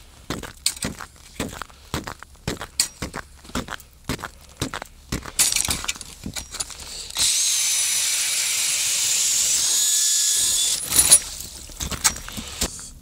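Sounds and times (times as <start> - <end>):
blades shaving ice: 6.9 - 12.9
ice auger motor whining: 6.9 - 12.9
knocks and scrapes: 10.8 - 13.0.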